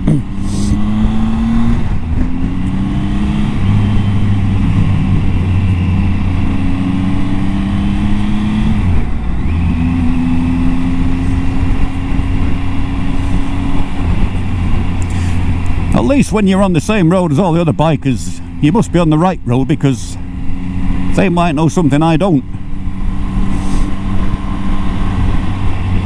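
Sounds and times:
wind rush on microphone: 0.0 - 16.7, 22.1 - 26.0.

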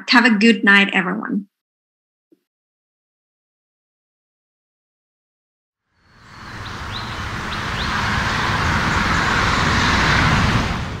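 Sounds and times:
motorway traffic rushing past: 5.9 - 11.0
high falling chirps: 6.0 - 9.9.

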